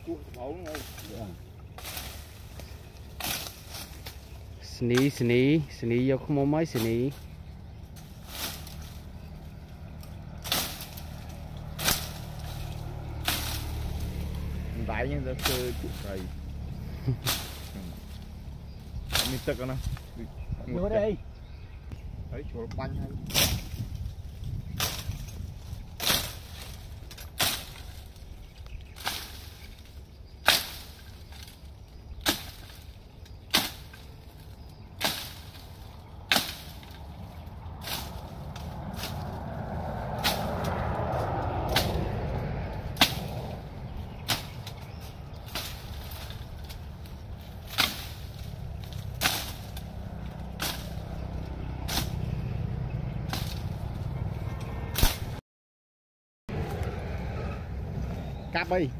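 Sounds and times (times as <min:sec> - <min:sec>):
low rumble: 0:00.0 - 0:55.4, 0:56.5 - 0:58.9
blade chopping through bamboo: 0:00.6 - 0:05.3, 0:07.9 - 0:16.3, 0:17.0 - 0:18.2, 0:19.0 - 0:20.1, 0:23.3 - 0:23.8, 0:24.7 - 0:25.4, 0:26.0 - 0:28.2, 0:28.8 - 0:52.4, 0:53.1 - 0:55.4.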